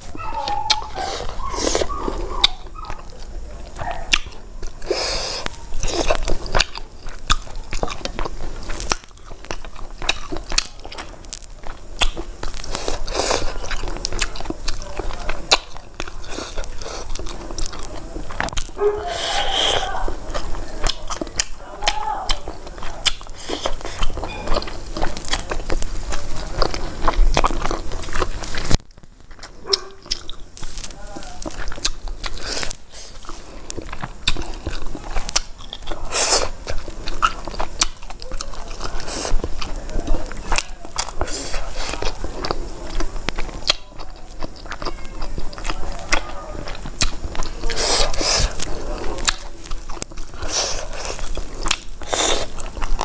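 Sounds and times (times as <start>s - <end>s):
person biting and chewing: 0.0s - 53.0s.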